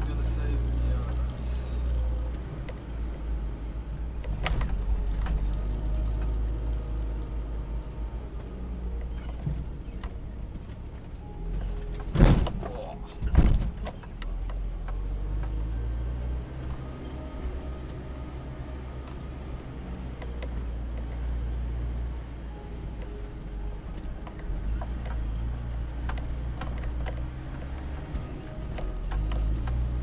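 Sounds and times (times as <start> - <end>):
car engine rumble: 0.0 - 30.0
rattles and jangling: 9.0 - 15.8, 23.0 - 30.0.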